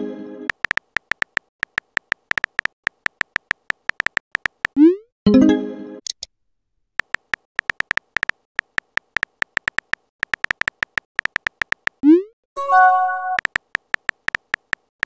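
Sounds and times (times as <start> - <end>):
keyboard tap clicks: 0.5 - 4.8, 7.0 - 12.0, 13.4 - 14.9
message chime: 12.6 - 13.4.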